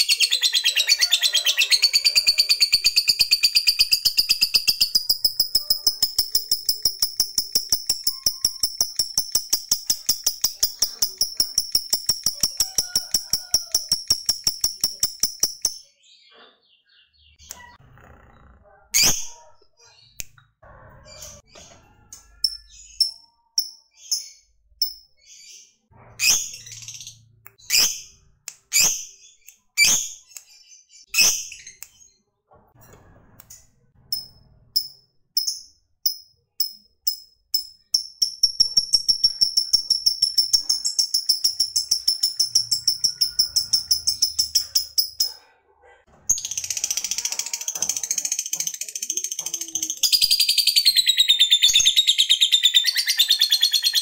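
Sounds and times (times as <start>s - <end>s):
lovebird chirping: 0.0s - 17.8s, 49.6s - 54.0s.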